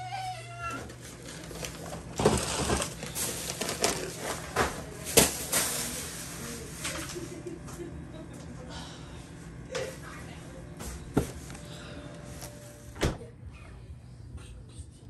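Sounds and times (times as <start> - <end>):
plastic bag crinkling: 0.8 - 7.2.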